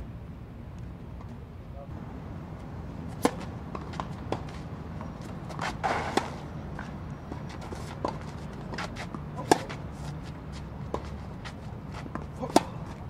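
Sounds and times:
tennis ball bouncing: 2.6 - 13.0
racket hitting tennis ball: 3.0 - 13.0
scuffing rush of noise: 3.0 - 13.0.

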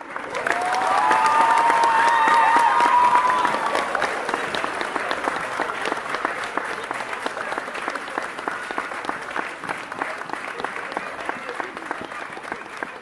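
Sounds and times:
crowd applauding: 0.0 - 13.0.

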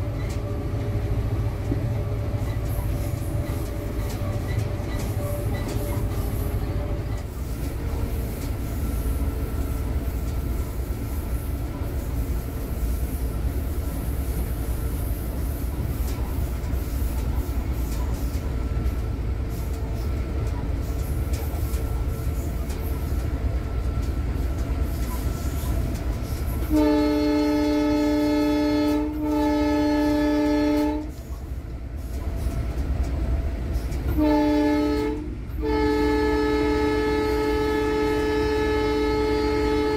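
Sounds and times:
locomotive engine rumble: 0.0 - 39.9
locomotive horn blasts: 26.6 - 31.2, 34.1 - 39.9.

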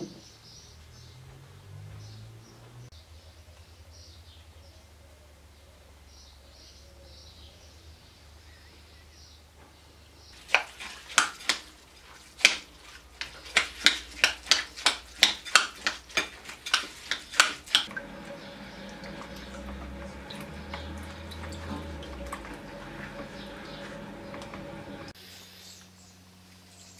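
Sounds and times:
low hum: 17.9 - 25.2.

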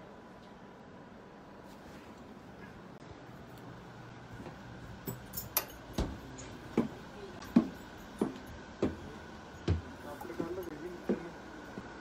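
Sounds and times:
faint steady hum: 0.0 - 12.0
footsteps on stairs: 6.0 - 12.0.

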